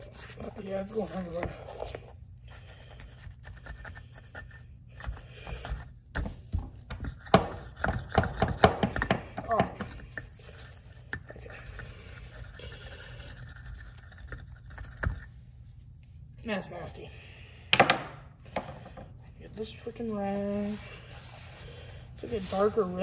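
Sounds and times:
brush scrubbing metal rim: 0.0 - 5.8, 19.6 - 23.0.

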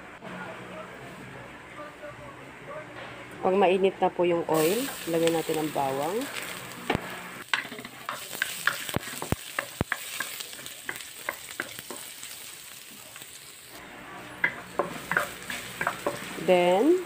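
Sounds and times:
garlic sizzling in oil: 4.5 - 17.0
wooden spatula tapping a pan: 7.5 - 12.1.

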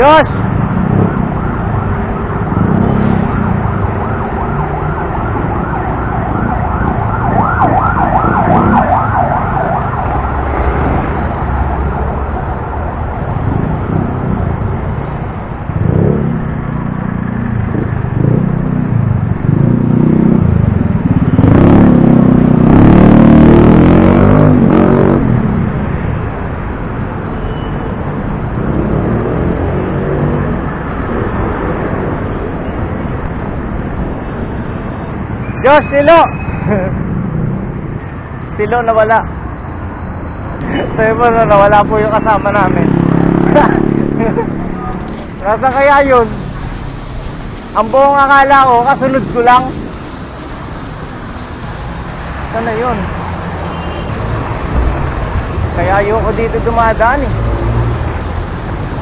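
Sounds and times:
road traffic rumble: 0.0 - 59.0
wailing siren: 0.6 - 13.9
heavy vehicle engine: 43.0 - 59.0.

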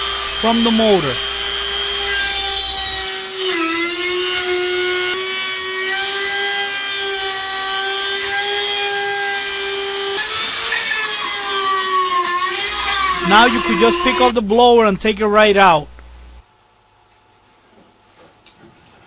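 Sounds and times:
rotary tool cutting plastic: 0.0 - 14.4.

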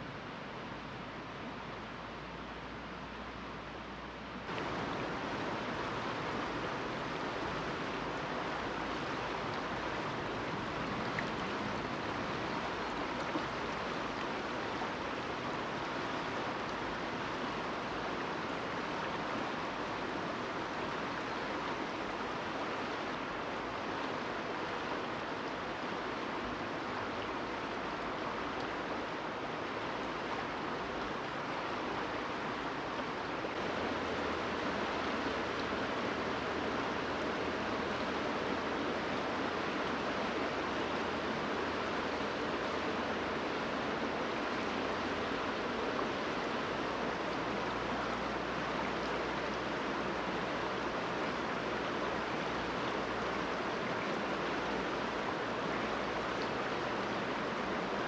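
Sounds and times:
river water rushing: 0.0 - 58.0.

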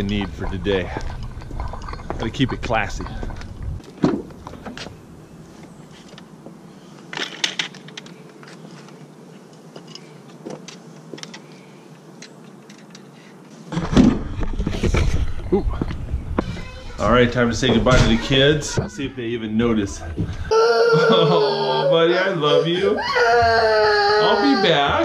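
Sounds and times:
rattle: 0.0 - 3.6.

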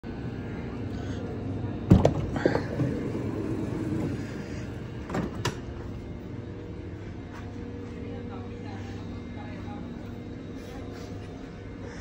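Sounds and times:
train low hum: 0.0 - 12.0
train doors sliding open: 1.8 - 5.8.

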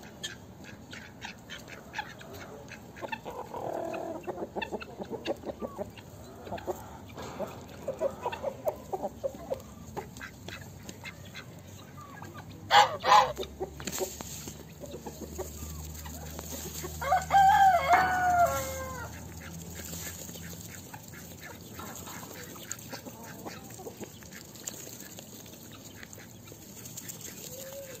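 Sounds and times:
hens clucking: 0.0 - 28.0
rooster crowing: 17.0 - 19.1.

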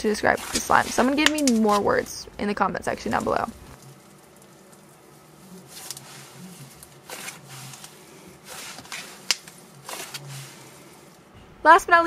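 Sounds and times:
slime squishing: 2.9 - 11.3.

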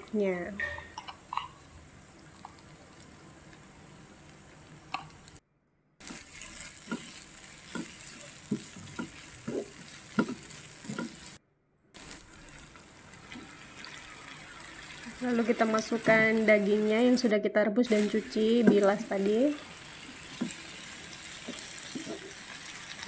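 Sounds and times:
paste sizzling in frying pan: 6.0 - 11.4, 12.0 - 17.2, 17.8 - 23.0
spatula scraping and knocking pan: 6.0 - 11.4, 20.2 - 22.4.

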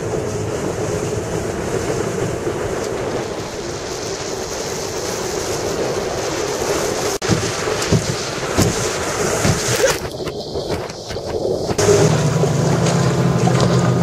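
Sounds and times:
wind noise on microphone: 0.0 - 12.7
outboard motor running: 11.6 - 14.0.

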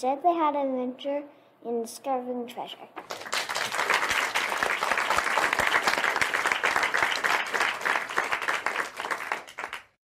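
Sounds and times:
crowd applauding: 3.0 - 10.0.

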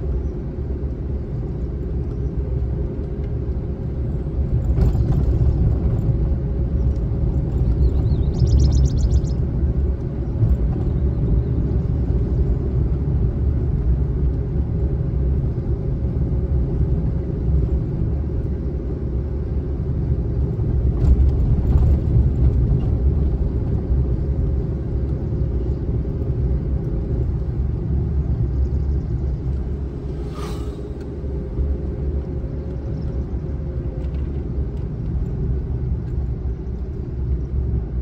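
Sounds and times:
tyre and engine rumble: 0.0 - 38.0
faint steady whine: 28.6 - 32.0.

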